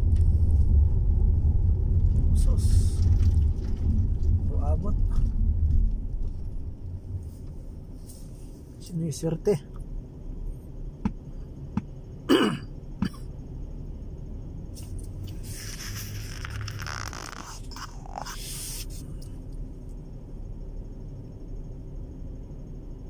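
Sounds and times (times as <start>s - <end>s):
car cabin hum: 0.0s - 23.0s
person coughing: 12.3s - 13.3s.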